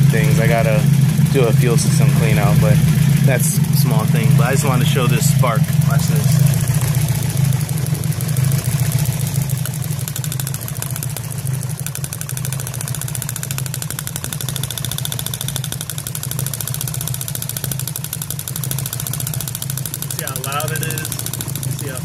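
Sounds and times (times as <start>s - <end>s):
car engine idling: 0.0s - 22.0s
spark ticking: 6.5s - 22.0s.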